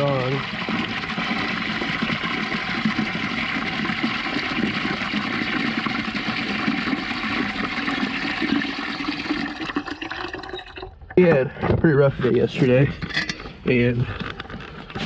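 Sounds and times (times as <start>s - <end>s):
water running into plastic bucket: 0.0s - 11.6s.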